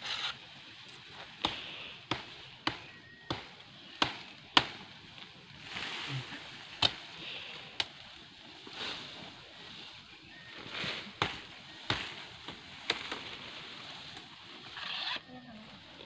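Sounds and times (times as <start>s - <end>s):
machete chopping stems: 1.4s - 5.0s, 6.8s - 7.0s, 11.2s - 13.3s.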